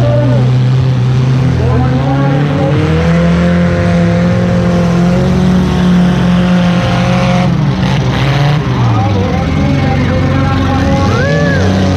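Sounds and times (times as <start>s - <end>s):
car engine running: 0.0s - 11.9s.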